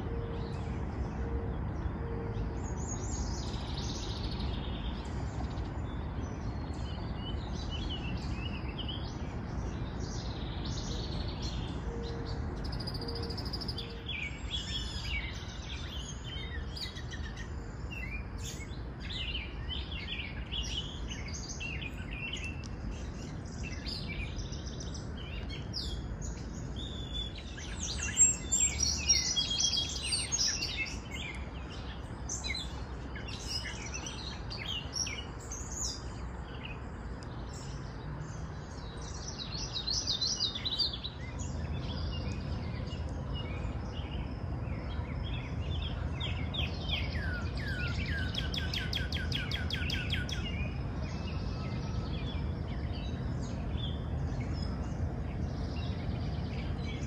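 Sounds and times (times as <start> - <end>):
songbirds chirping and trilling: 0.0 - 57.0
low steady rumble: 41.4 - 57.0.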